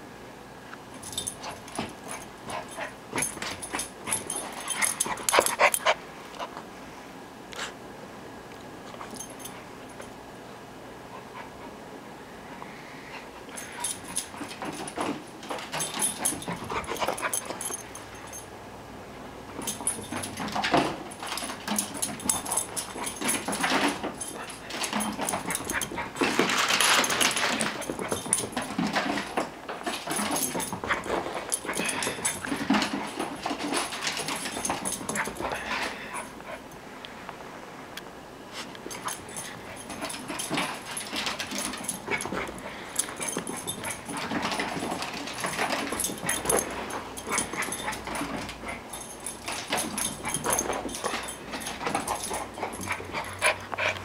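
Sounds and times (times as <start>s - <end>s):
puppy noises: 29.9s - 36.8s, 38.6s - 54.0s.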